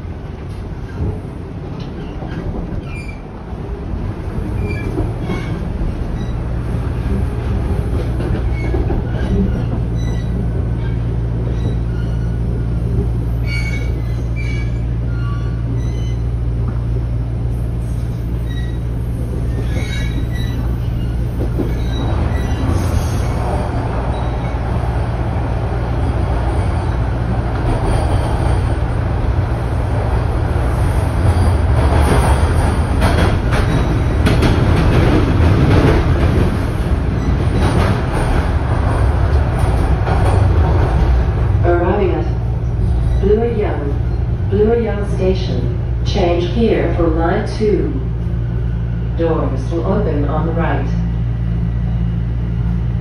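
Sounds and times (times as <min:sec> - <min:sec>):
subway motor hum: 0:00.0 - 0:53.0
wheels rumbling on rail: 0:00.0 - 0:53.0
high wheel squeaks: 0:19.5 - 0:23.4.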